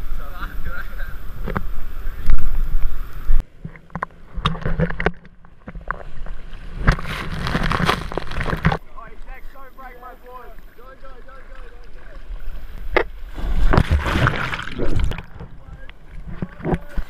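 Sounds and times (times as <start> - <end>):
wind rumbling on microphone: 0.0 - 3.4
water splashing and sloshing: 1.4 - 8.8, 10.5 - 17.0.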